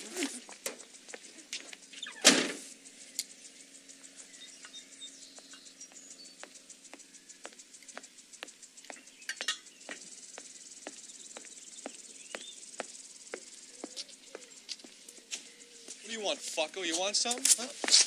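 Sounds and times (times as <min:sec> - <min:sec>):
footsteps on pavement: 0:00.0 - 0:01.8, 0:05.3 - 0:09.1, 0:09.8 - 0:18.0
bird chirp: 0:00.0 - 0:18.0
crickets chirring: 0:00.0 - 0:18.0.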